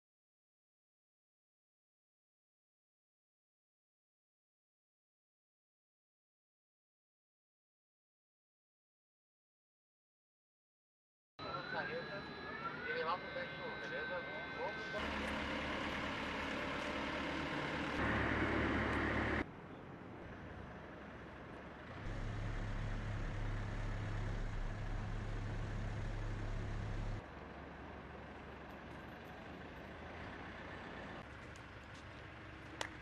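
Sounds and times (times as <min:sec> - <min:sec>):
tow tractor engine humming: 0:11.4 - 0:33.0
vehicle noise: 0:11.4 - 0:33.0.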